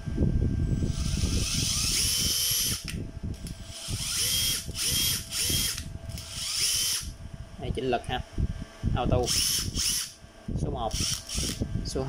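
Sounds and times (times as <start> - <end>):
impact driver motor whining: 0.8 - 7.2, 9.2 - 10.2, 10.9 - 11.6.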